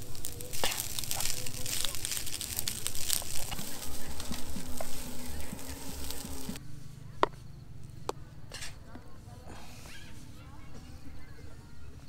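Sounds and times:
rice sizzling in a frying pan: 0:00.0 - 0:06.6
spatula scraping a pan: 0:00.0 - 0:06.6.

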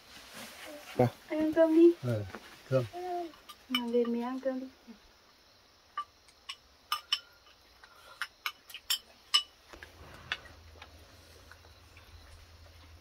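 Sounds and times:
utensils clinking against bowls: 0:03.3 - 0:04.2, 0:06.0 - 0:09.6.

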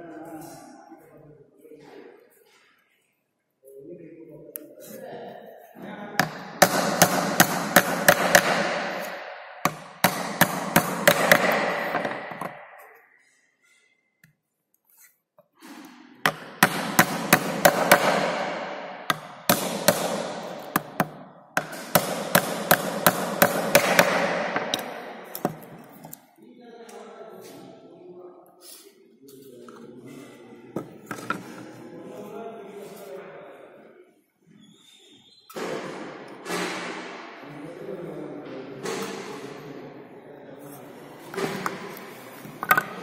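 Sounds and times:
hammer tapping nails: 0:06.2 - 0:12.6, 0:16.3 - 0:26.2, 0:42.6 - 0:43.0.

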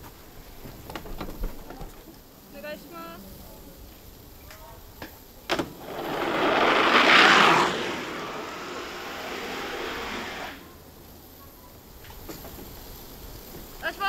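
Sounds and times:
skis sliding hiss: 0:00.0 - 0:14.0.

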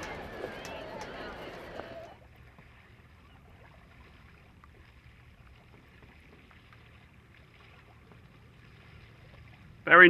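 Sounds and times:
water lapping against boat hull: 0:00.0 - 0:10.0.

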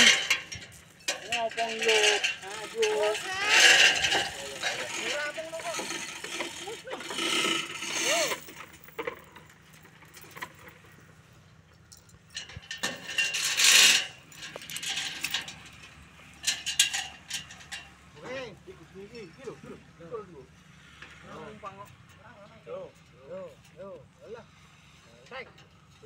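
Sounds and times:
loud scraping: 0:00.0 - 0:09.5, 0:12.8 - 0:15.6
metal clanks and rattles: 0:00.0 - 0:19.9.

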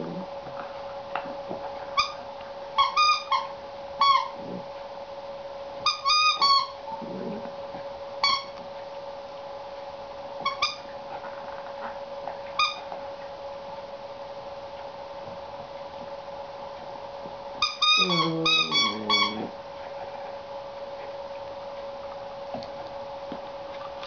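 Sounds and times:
squeaky dog toy squeaking: 0:02.8 - 0:04.3, 0:05.9 - 0:06.8, 0:17.6 - 0:19.5.

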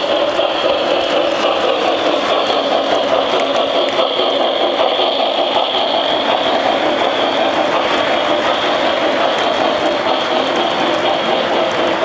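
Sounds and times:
model train rolling on track: 0:00.0 - 0:12.0.

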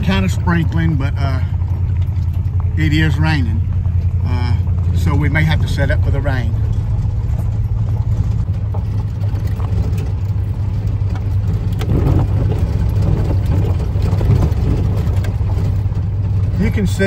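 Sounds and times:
van engine and tyres droning: 0:00.0 - 0:17.0
small knocks and rattles: 0:06.5 - 0:17.0.

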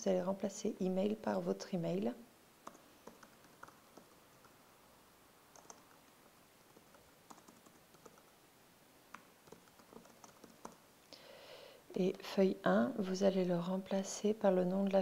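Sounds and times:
faint keyboard typing: 0:02.6 - 0:04.6, 0:05.5 - 0:08.3, 0:09.1 - 0:10.8.

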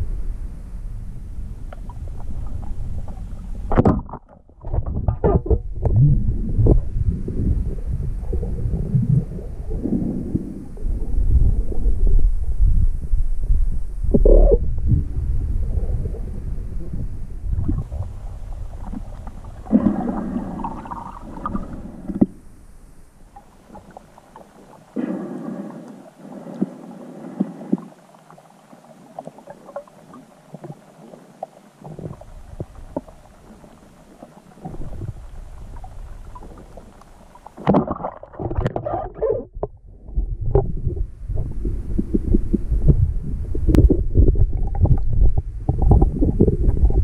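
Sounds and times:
low underwater rumble: 0:00.0 - 0:47.0
underwater bubbling: 0:00.0 - 0:47.0
water movement: 0:01.4 - 0:22.6, 0:23.2 - 0:47.0
small underwater clicks: 0:01.7 - 0:06.0, 0:18.7 - 0:22.4, 0:23.3 - 0:39.8.

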